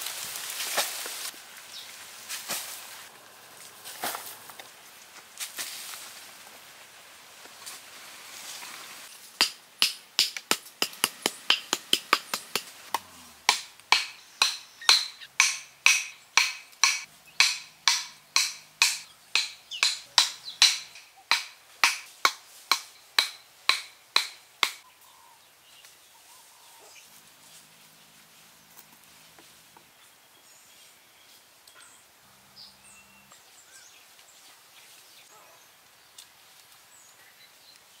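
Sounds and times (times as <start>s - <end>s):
wood-on-wood hammering knocks: 13.5s - 24.8s.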